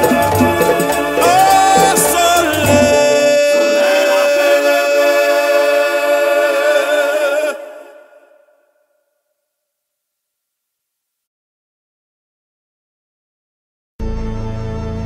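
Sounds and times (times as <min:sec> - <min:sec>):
low musical accompaniment: 0:00.0 - 0:04.1
people singing a held note: 0:00.0 - 0:09.0.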